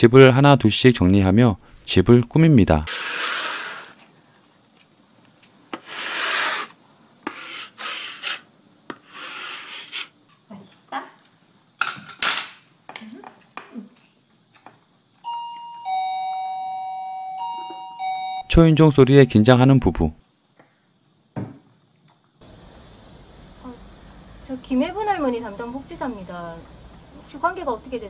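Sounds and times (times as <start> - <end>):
hands smoothing paper on wall: 2.9 - 4.1, 5.7 - 10.2
two-note doorbell chime: 15.2 - 18.5.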